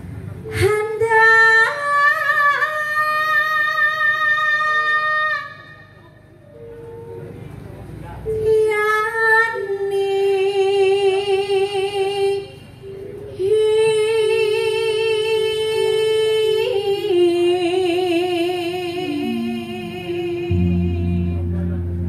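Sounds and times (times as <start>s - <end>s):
woman singing with vibrato: 0.4s - 6.0s, 8.2s - 21.8s
low steady tone: 19.0s - 22.0s.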